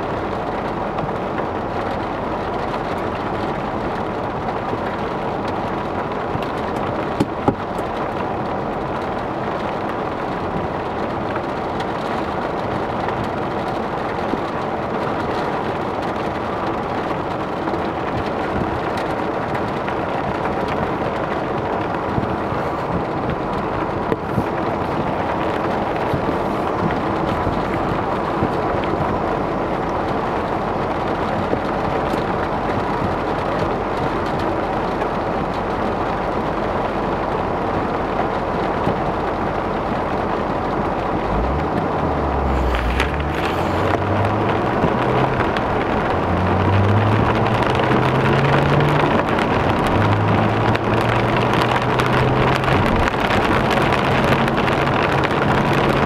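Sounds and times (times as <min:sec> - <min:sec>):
heavy rain on car roof: 0:00.0 - 0:56.0
car engine accelerating: 0:40.6 - 0:56.0.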